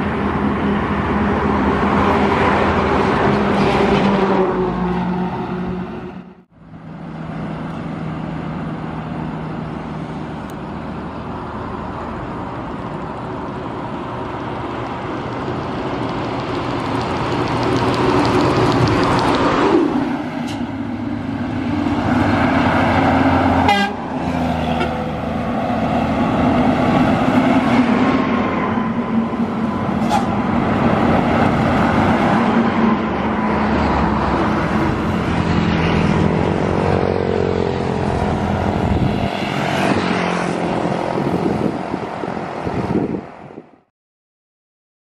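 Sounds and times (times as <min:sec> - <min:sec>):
heavy traffic passing: 0:00.0 - 0:43.9
vehicle horn: 0:23.6 - 0:25.0.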